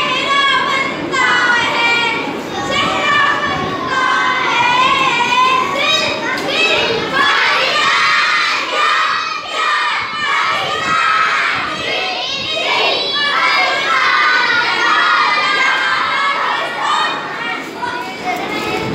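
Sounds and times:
children shouting and cheering: 0.0s - 18.9s.

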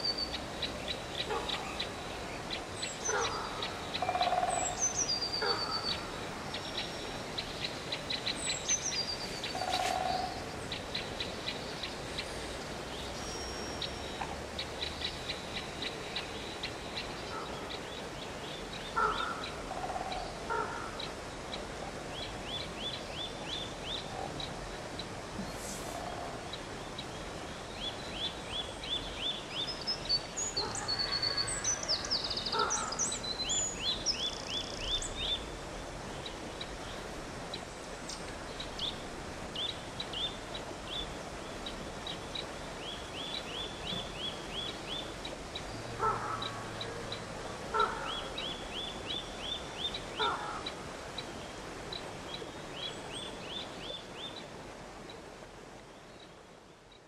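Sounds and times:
stream rushing over rocks: 0.0s - 57.0s.

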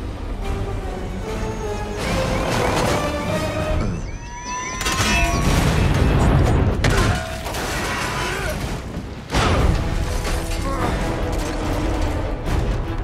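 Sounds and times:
dramatic orchestral score: 0.0s - 13.0s
crashing wreckage: 4.6s - 13.0s.

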